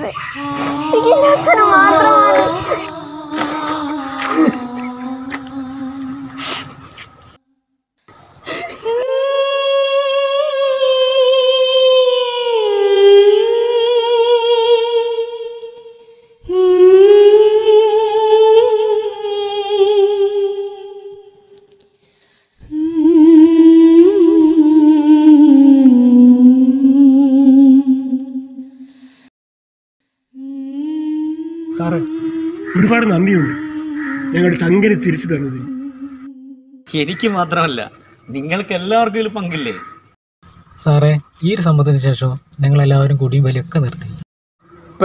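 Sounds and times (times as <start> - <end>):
person humming a melody: 0.4 - 6.8, 8.6 - 21.6, 22.7 - 28.8, 30.4 - 36.8.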